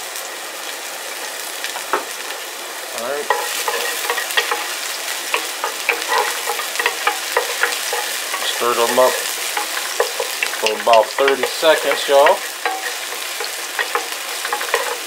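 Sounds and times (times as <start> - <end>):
shallots sizzling in oil: 0.0 - 15.0
wooden spoon scraping a pan: 3.2 - 15.0.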